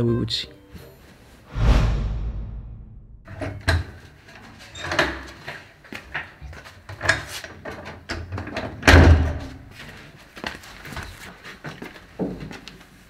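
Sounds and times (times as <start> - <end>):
heavy bang: 1.5 - 3.3.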